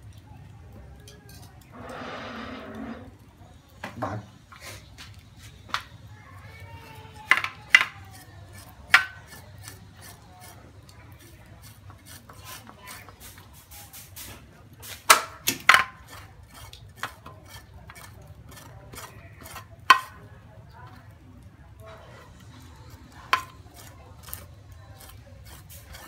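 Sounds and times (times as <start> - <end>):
knife scraping: 1.3 - 3.2, 8.1 - 13.4, 16.0 - 20.2, 22.0 - 26.0.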